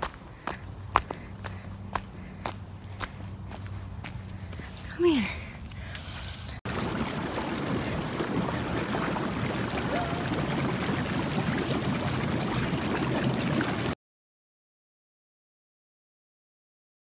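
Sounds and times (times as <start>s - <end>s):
hot tub jets churning water: 6.0s - 14.0s.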